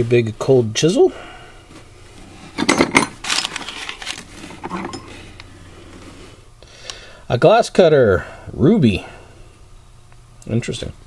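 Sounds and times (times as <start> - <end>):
metal tools clattering: 2.6 - 5.2.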